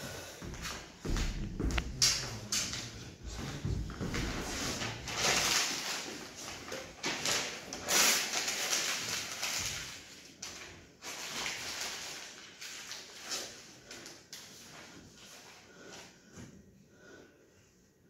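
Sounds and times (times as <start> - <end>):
paper rustling and crinkling: 4.0 - 15.4.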